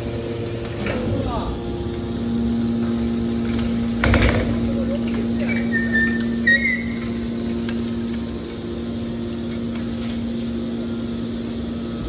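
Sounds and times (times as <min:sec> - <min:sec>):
hydraulic baler humming: 0:00.0 - 0:12.0
high squeaks: 0:05.4 - 0:07.2.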